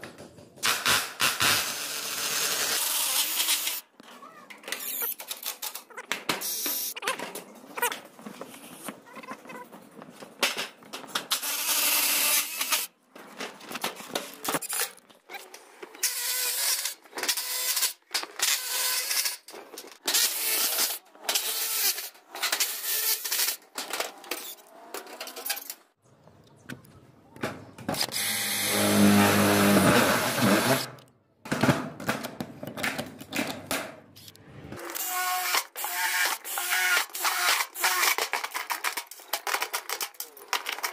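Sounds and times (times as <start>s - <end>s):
cordless drill on sheet metal: 0.6s - 3.8s, 11.3s - 12.9s, 16.0s - 19.4s, 20.1s - 23.6s, 28.0s - 31.0s, 34.8s - 38.3s.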